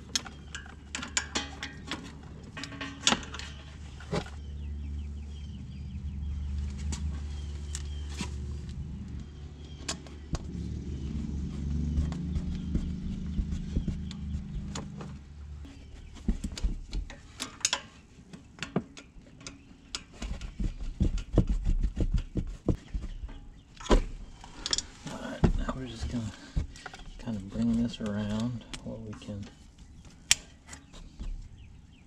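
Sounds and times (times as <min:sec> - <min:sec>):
low hum: 0:00.0 - 0:17.2.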